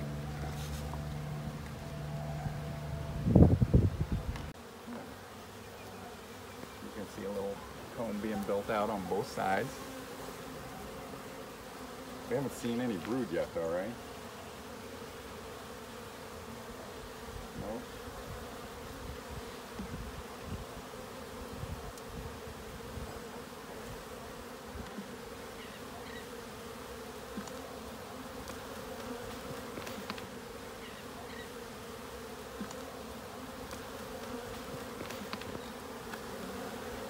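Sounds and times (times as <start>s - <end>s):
bees buzzing: 0.0s - 37.0s
faint ticks of hive frames: 14.0s - 37.0s.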